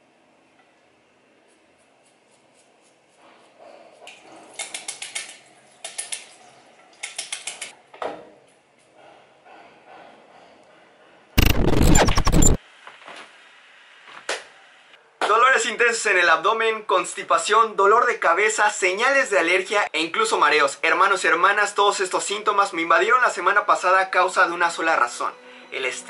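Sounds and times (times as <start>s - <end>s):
water splashing in a basin: 4.6s - 7.3s
water dripping: 4.6s - 7.6s
loud harsh noise burst: 11.4s - 12.6s.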